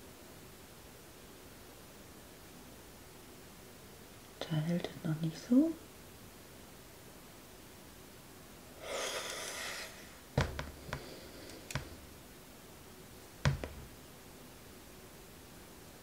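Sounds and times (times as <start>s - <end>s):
sharp knocks and clicks: 10.4s - 11.1s, 13.4s - 13.9s.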